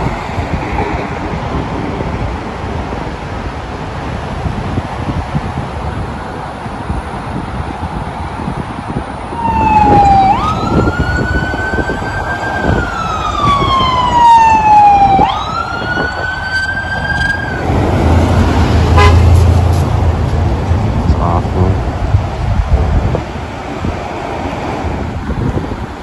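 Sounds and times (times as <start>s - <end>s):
wind and road noise: 0.0s - 26.0s
siren wailing: 9.3s - 19.2s.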